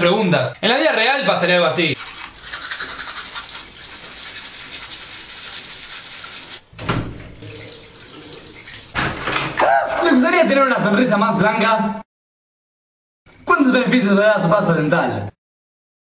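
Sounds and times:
toothbrushing: 2.0 - 6.6
tap water running into sink: 7.4 - 9.1.

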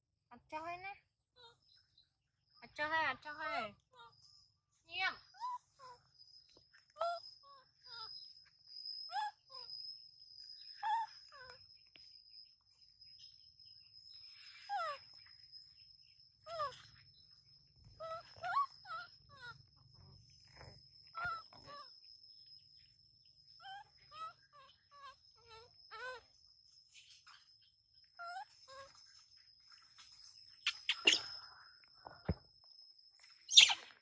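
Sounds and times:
baby monkey whimpering cries: 10.8 - 11.6, 16.5 - 16.9, 18.0 - 19.7, 21.2 - 21.9, 23.6 - 26.3.

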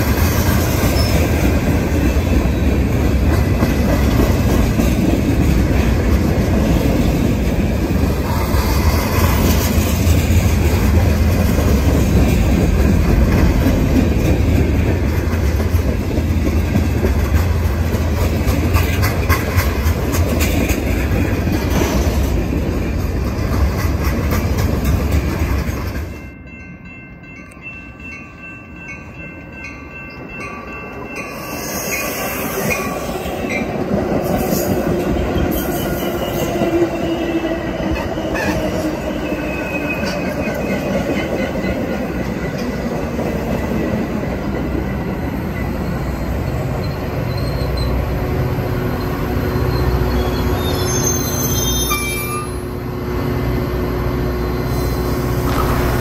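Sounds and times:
wheels clacking over rail joints: 0.0 - 26.1
commuter train approaching: 0.0 - 56.0
freight train rolling past: 0.0 - 56.0.

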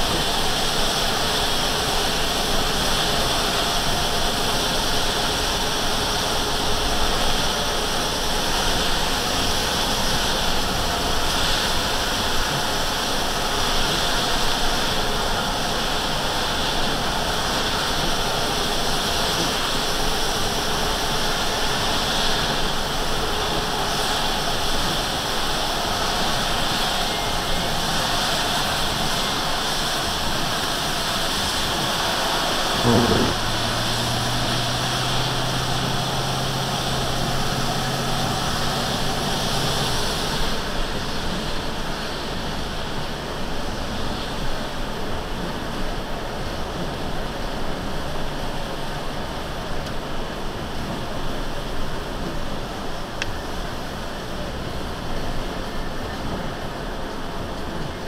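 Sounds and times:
engine running: 15.0 - 42.6
rain on windshield: 31.6 - 41.6.

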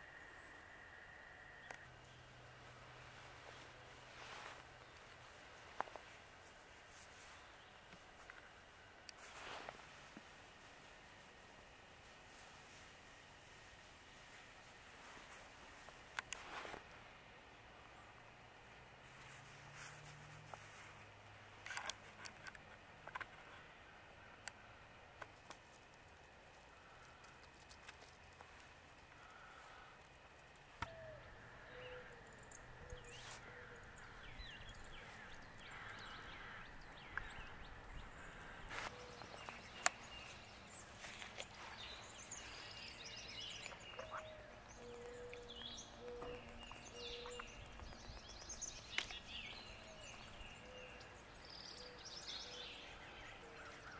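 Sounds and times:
bird chirps and calls: 30.9 - 53.9.

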